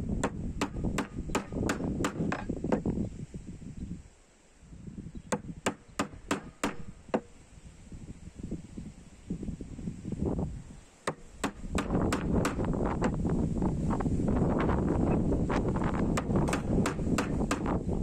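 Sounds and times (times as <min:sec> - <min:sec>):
mallet striking chisel handle: 0:00.2 - 0:02.8, 0:05.6 - 0:07.3, 0:16.2 - 0:17.7.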